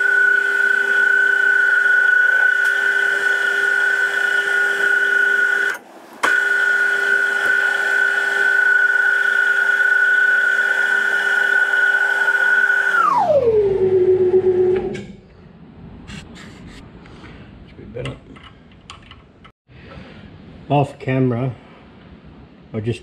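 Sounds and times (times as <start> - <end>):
metal lathe motor whining: 0.0 - 14.9.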